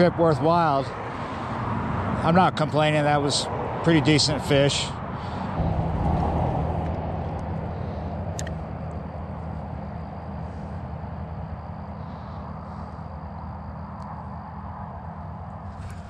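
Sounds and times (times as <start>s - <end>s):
road traffic drone: 0.0s - 16.0s
sharp click: 8.3s - 8.6s.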